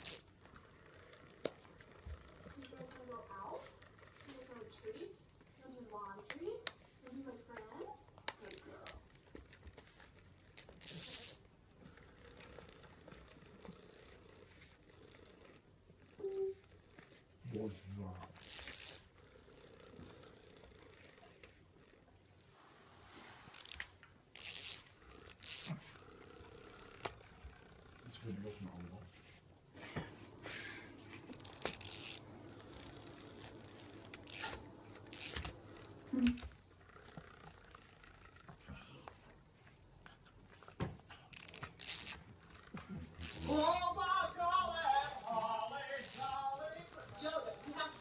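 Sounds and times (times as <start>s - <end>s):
fabric rubbing and tugging: 22.4s - 39.2s, 41.4s - 48.0s
dog chewing plush toy: 23.8s - 43.8s.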